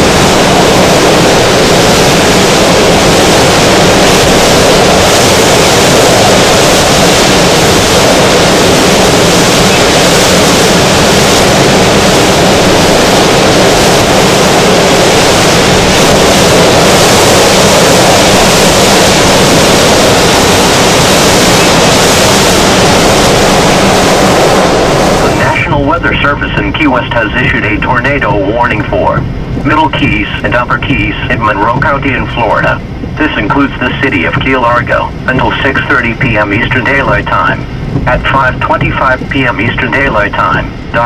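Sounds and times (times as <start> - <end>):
wind buffeting microphone: 0.0 - 26.2, 27.0 - 41.0
strong wind blowing: 0.0 - 41.0.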